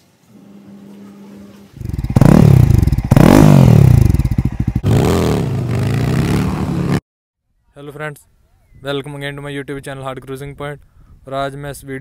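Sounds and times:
motorcycle engine revving: 1.7s - 7.0s.

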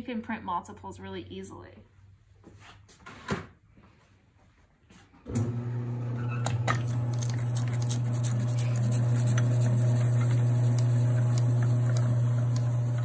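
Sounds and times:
printing press motor hum: 5.3s - 13.0s.

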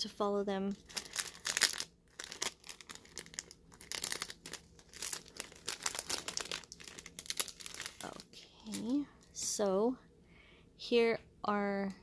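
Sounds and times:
plastic bag crinkling: 0.7s - 9.0s.

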